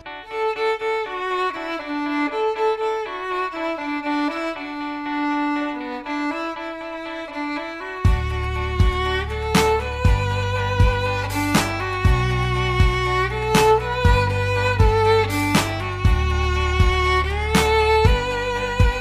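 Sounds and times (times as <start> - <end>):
low bass beat: 7.4 - 19.0
percussion hits: 8.1 - 16.2.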